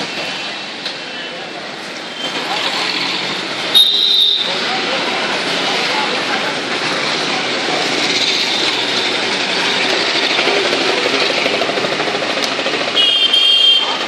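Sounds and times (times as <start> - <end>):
motorcycle and scooter engines: 0.0 - 14.0
short high vehicle horn: 13.0 - 14.0.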